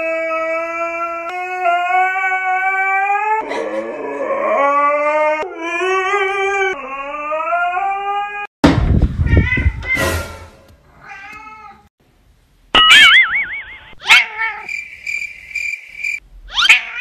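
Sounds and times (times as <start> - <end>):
cat meowing: 11.0 - 11.9.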